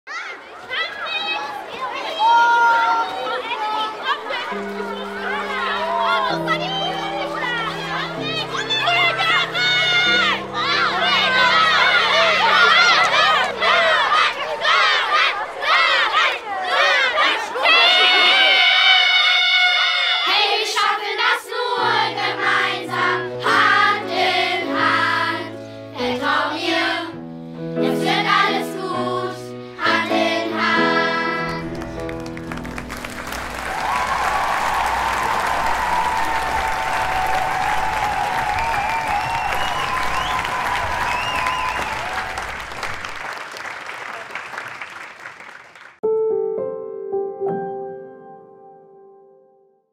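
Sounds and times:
sustained keyboard notes: 4.5 - 14.4
children's choir singing: 4.5 - 31.7
applause: 12.1 - 13.5, 31.6 - 46.0.

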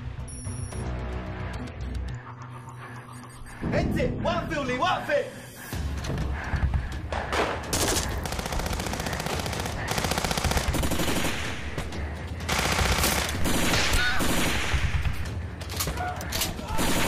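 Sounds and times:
automatic gunfire: 7.3 - 11.8, 12.5 - 15.1, 16.7 - 17.0.

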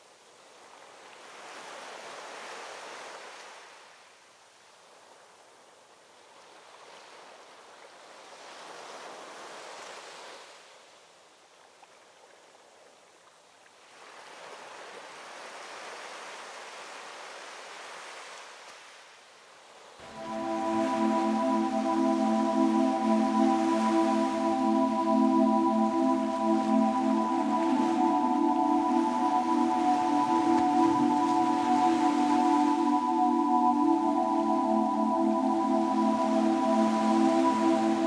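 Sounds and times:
ocean waves washing in: 20.0 - 38.0.

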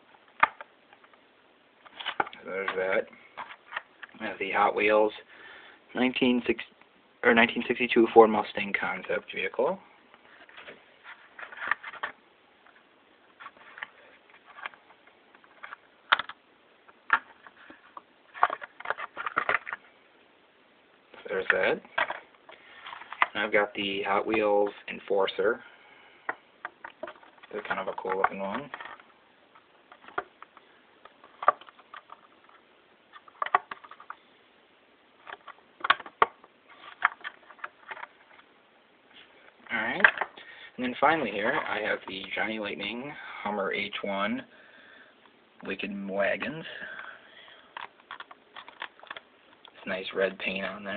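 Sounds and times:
plastic packaging clicking and crinkling: 13.4 - 19.9, 26.3 - 34.2, 35.2 - 38.5, 47.7 - 49.8.

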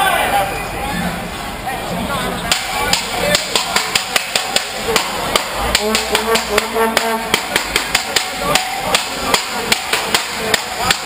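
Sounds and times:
crowd: 0.0 - 11.0
rhythmic sharp drumbeats: 2.5 - 11.0.

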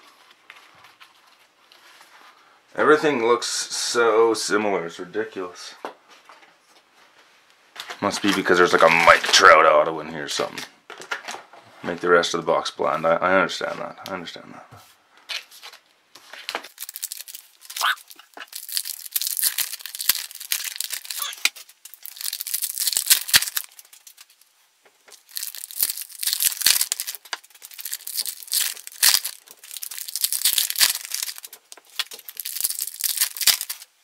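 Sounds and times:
wrapper tearing and crinkling: 15.3 - 34.0.

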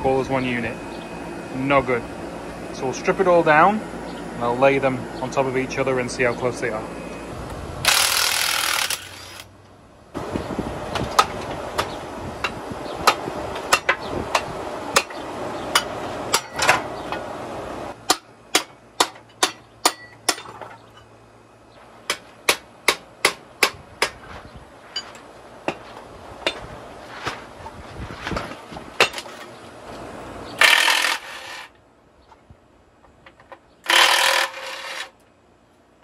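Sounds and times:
hammer striking steel: 13.0 - 16.9, 18.1 - 20.6.

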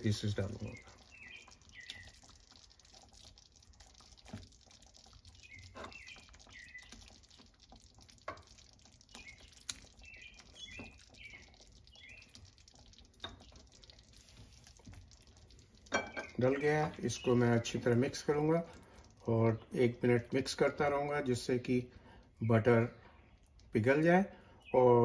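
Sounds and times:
sauce simmering: 0.0 - 25.0
small high chirps: 0.5 - 17.6.

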